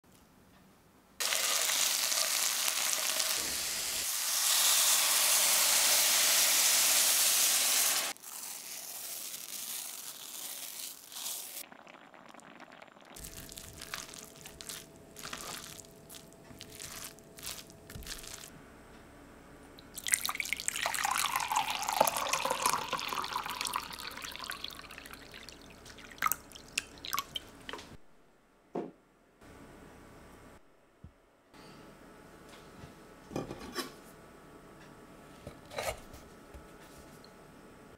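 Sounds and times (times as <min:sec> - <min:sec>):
loud steady hiss: 0:01.3 - 0:08.2
liquid pouring into a vessel: 0:11.5 - 0:15.8, 0:19.8 - 0:27.8.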